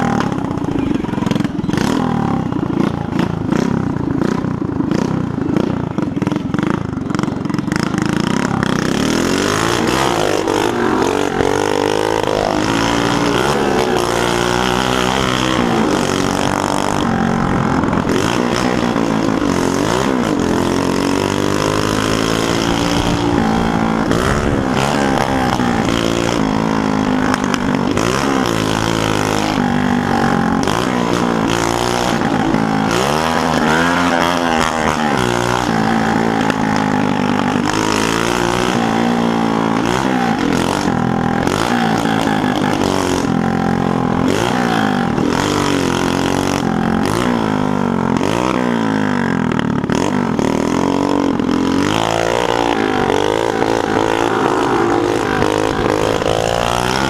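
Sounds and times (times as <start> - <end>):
moped engine revving: 0.0 - 57.0.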